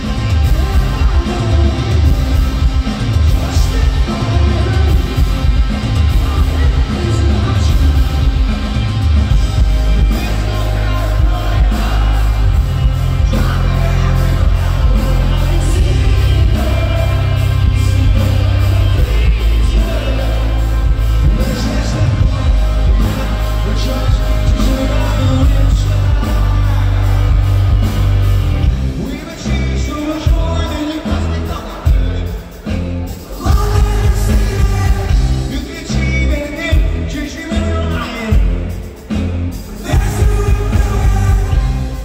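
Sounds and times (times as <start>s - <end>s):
person singing: 0.0s - 8.9s, 9.6s - 28.1s, 39.5s - 42.0s
live rock band playing: 0.0s - 42.0s.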